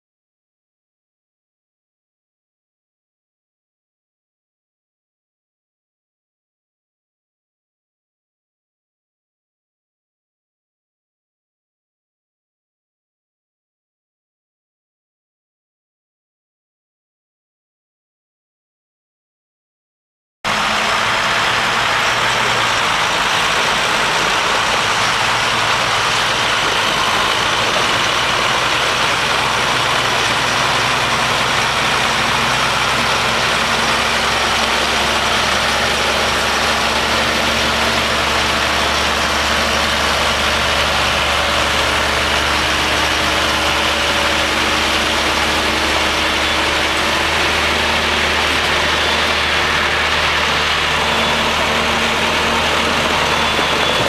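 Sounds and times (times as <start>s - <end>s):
tractor diesel engines under load: 20.5s - 54.0s
truck engine running: 20.5s - 54.0s.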